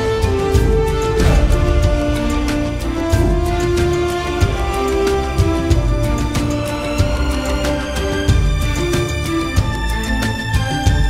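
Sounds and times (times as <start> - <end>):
orchestral music: 0.0 - 11.0
low drum hits: 1.1 - 4.9.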